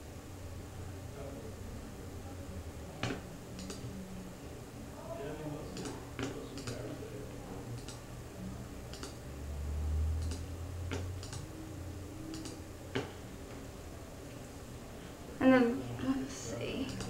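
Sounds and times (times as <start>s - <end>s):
computer mouse clicking: 3.0s - 3.9s, 5.8s - 6.9s, 7.8s - 8.0s, 8.9s - 9.2s, 10.2s - 11.5s, 12.3s - 13.1s.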